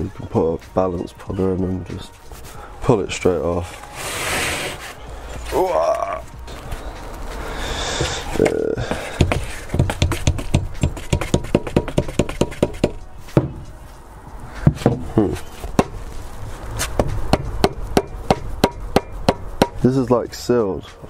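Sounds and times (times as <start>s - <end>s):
rubber mallet knocking on metal: 9.2s - 13.6s, 17.0s - 19.8s.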